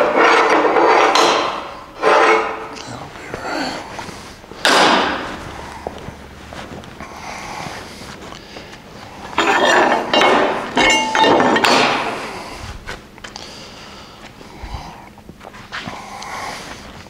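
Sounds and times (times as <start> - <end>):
steel pieces clanking and scraping: 0.0 - 2.8, 9.3 - 12.4.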